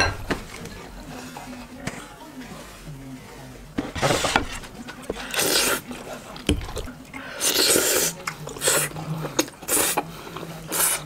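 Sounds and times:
person slurping food: 0:05.2 - 0:05.9, 0:06.7 - 0:11.0.

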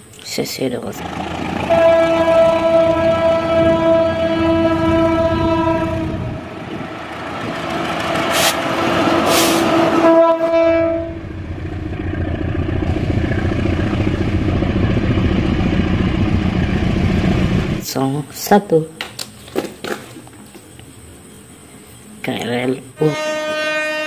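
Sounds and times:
diesel engine rumble: 0:00.8 - 0:17.9
locomotive horn blasts: 0:01.0 - 0:06.6, 0:09.2 - 0:11.4, 0:23.0 - 0:24.0
train wheels on rails: 0:01.0 - 0:17.9.

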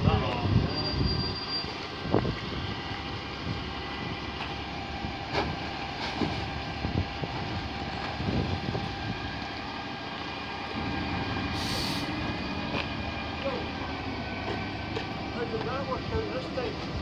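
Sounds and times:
bin lorry engine running: 0:00.0 - 0:17.0.

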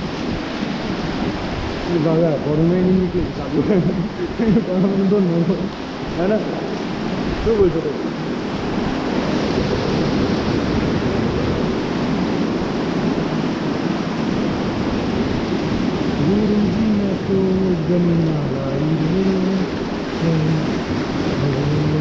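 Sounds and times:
river rapids rushing: 0:00.0 - 0:22.0
wind buffeting microphone: 0:00.0 - 0:22.0
person calling out: 0:16.2 - 0:20.8.

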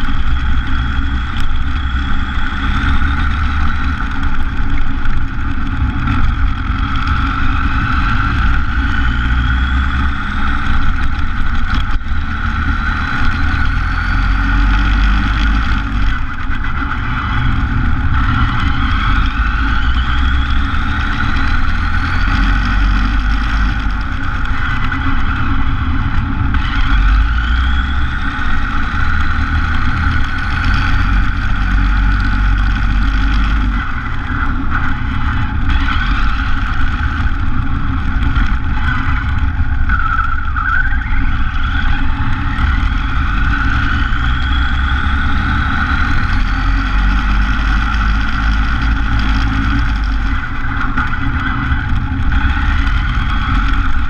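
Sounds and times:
motor and gear whine: 0:00.0 - 0:54.0
tyres rumbling on road: 0:00.0 - 0:54.0.

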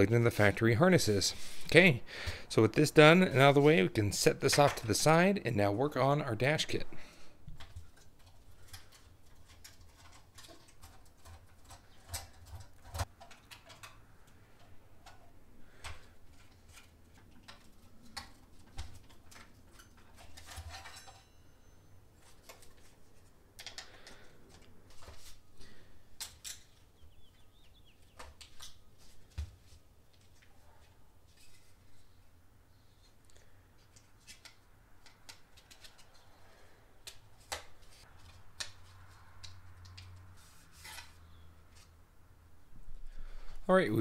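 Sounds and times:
plastic and metal parts handled: 0:07.5 - 0:21.5, 0:22.2 - 0:26.9, 0:31.3 - 0:32.2, 0:33.8 - 0:36.4.

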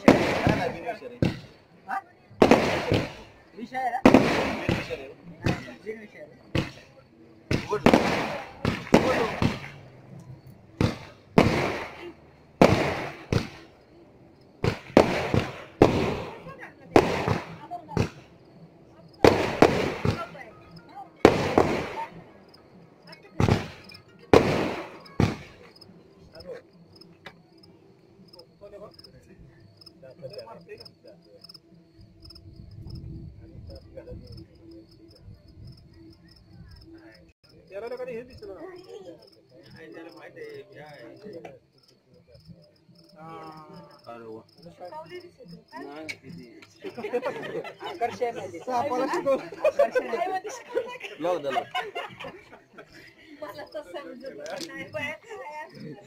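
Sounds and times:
sharp bangs: 0:00.0 - 0:01.6, 0:02.4 - 0:03.4, 0:04.0 - 0:05.9, 0:06.5 - 0:13.8, 0:14.5 - 0:18.4, 0:19.2 - 0:27.2
crickets chirping: 0:00.0 - 0:56.0.

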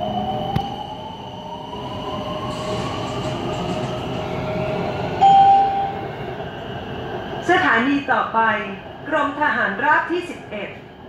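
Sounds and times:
train car rumble: 0:01.5 - 0:11.0
steady chime tone: 0:05.2 - 0:06.1.

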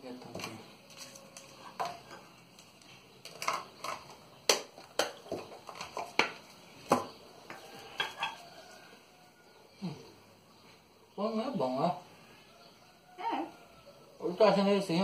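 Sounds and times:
cups clinking on saucers: 0:03.4 - 0:08.8.

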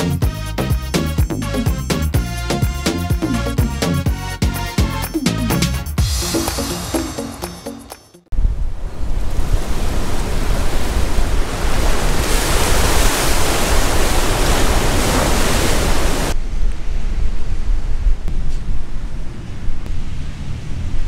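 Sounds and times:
wind on microphone: 0:08.4 - 0:21.0
ocean surf breaking: 0:08.8 - 0:16.4.

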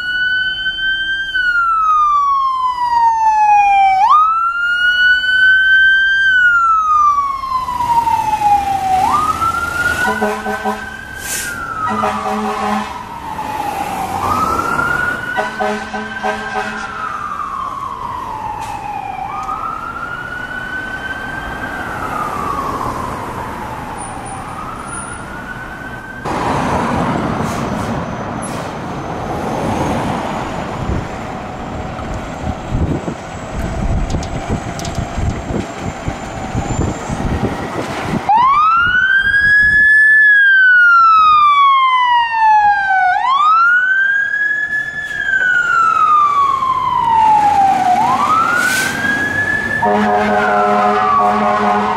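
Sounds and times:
fire engine siren wailing: 0:00.0 - 0:51.9
diesel engine rumbling: 0:06.6 - 0:39.9.

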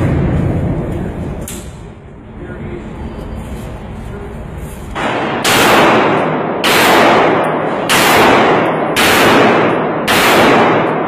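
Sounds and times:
handgun shots echoing indoors: 0:05.0 - 0:11.0.

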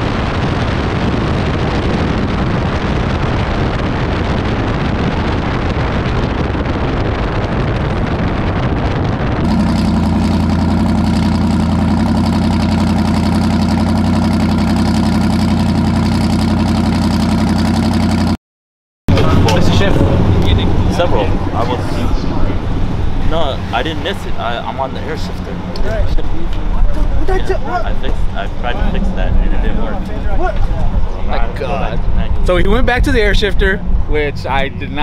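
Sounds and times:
wind and road rush: 0:00.0 - 0:18.4, 0:19.1 - 0:35.0
engine idling at high pitch: 0:09.4 - 0:18.4.

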